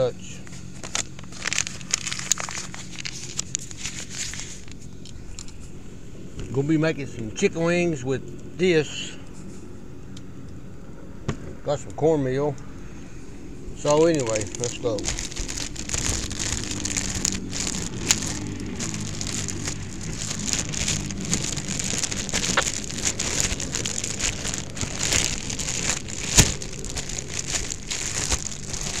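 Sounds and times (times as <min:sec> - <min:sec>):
plastic bag crinkling: 0:00.4 - 0:04.8, 0:13.8 - 0:29.0.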